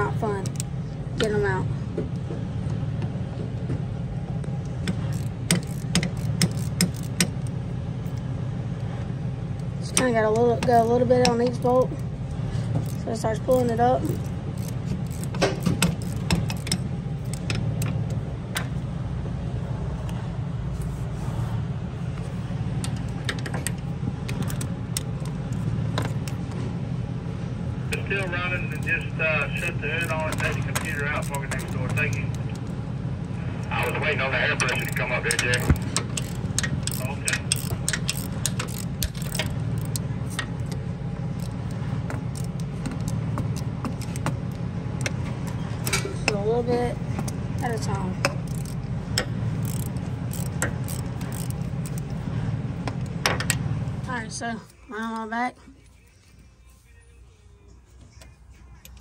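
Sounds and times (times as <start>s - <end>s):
low hum: 0.0s - 59.0s
hand ratchet clicking on bolts: 4.7s - 7.5s, 12.8s - 18.7s, 34.6s - 40.8s, 41.4s - 46.0s, 47.2s - 52.2s.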